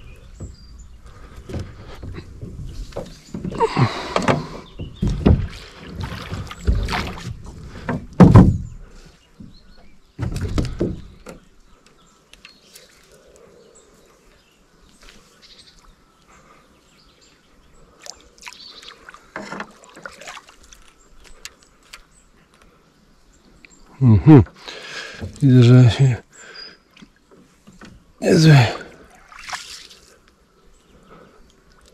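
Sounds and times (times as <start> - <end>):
small knocks and clicks in boat: 0.0 - 12.9, 19.1 - 22.7, 24.4 - 25.8, 26.9 - 28.2
oars splashing in water: 0.0 - 14.3, 17.9 - 22.3, 24.5 - 30.3.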